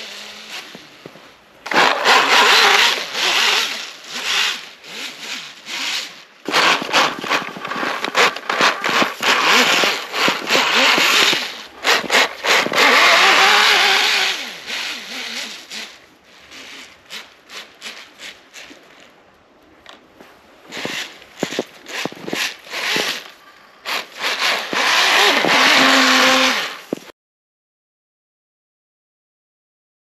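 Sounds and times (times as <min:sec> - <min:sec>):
track churning through snow: 0:00.0 - 0:18.6, 0:20.3 - 0:27.1
electric motor whining: 0:01.7 - 0:15.9, 0:23.9 - 0:27.0.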